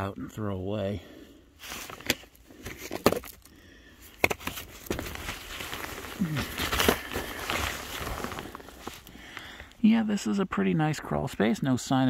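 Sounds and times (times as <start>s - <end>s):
sharp plastic crackles: 1.6s - 9.7s
plastic sheeting crinkling: 4.5s - 9.1s.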